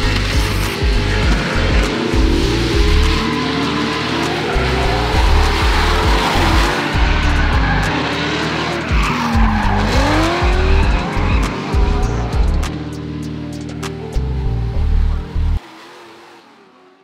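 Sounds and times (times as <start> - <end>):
music with heavy bass beat: 0.0 - 15.6
car engines revving: 0.0 - 17.0
tyres squealing: 0.1 - 12.7.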